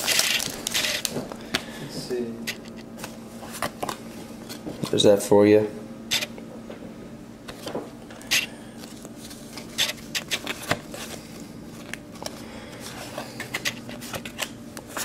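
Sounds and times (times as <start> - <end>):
cards rustling and snapping: 0.0 - 1.7, 2.4 - 5.0, 7.5 - 15.0.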